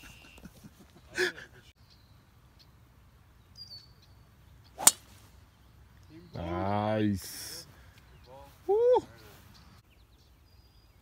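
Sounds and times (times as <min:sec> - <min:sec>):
faint bird chirps: 0:00.0 - 0:06.7
golf club striking ball: 0:04.8 - 0:05.1.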